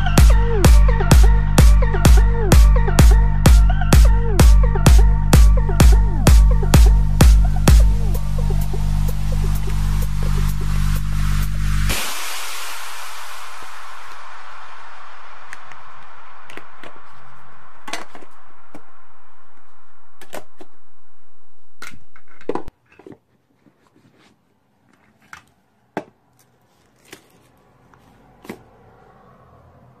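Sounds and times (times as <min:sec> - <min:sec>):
background music: 0:00.0 - 0:15.7.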